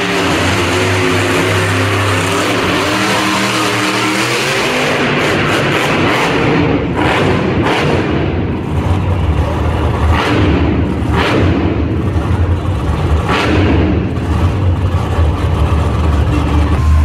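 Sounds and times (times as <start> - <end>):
monster truck engine revving: 0.0 - 17.0.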